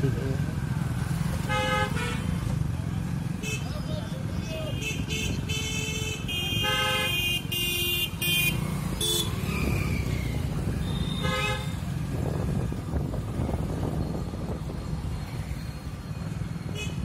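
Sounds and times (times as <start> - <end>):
engine and road rumble: 0.0 - 17.0
vehicle horns honking: 1.4 - 2.4, 3.4 - 9.5, 10.8 - 12.0, 16.7 - 17.0.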